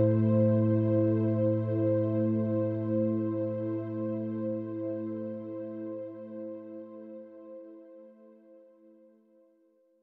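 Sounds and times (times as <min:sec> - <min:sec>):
ambient music held chord: 0:00.0 - 0:07.8.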